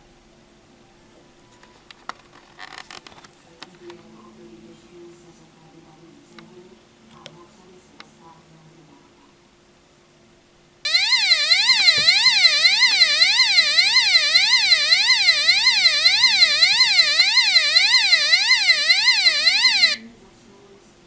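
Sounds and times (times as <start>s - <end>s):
shrill electronic siren: 10.9s - 20.0s.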